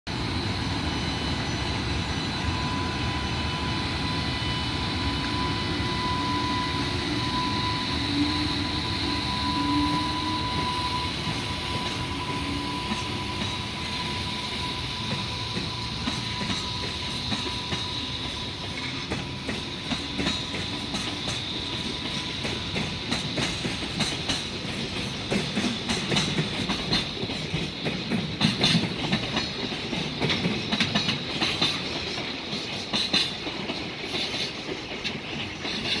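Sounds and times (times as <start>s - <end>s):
freight train rumbling past: 0.1s - 36.0s
train wheels clacking on rail joints: 5.1s - 36.0s.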